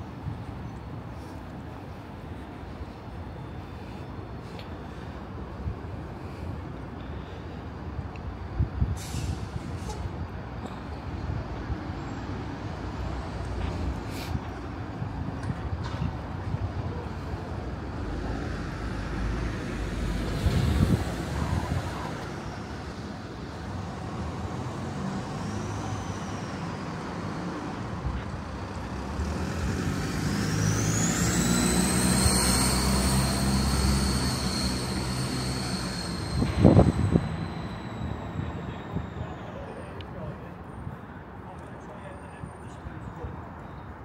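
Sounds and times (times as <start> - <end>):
vehicles passing: 0.0 - 44.0
high whine: 30.4 - 40.0.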